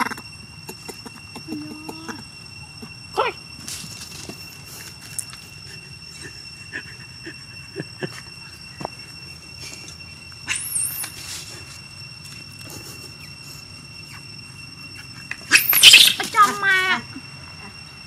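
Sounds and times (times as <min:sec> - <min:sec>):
faint steady high whine: 0:00.0 - 0:18.0
baby monkeys squealing: 0:10.4 - 0:11.3, 0:12.9 - 0:17.0.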